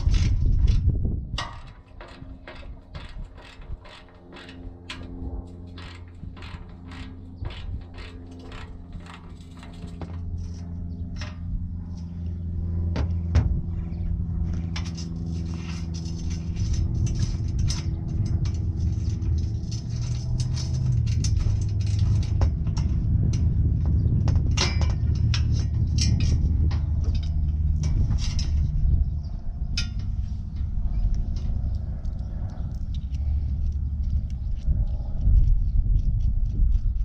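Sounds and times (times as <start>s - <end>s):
steady low rumble: 0.0s - 37.0s
ratchet and bolts clicking: 1.4s - 10.6s, 14.8s - 23.5s.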